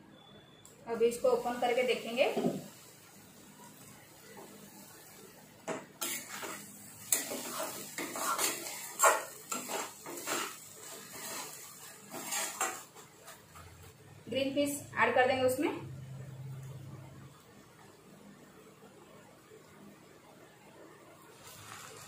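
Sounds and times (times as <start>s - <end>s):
spatula scraping a pan: 6.0s - 13.6s.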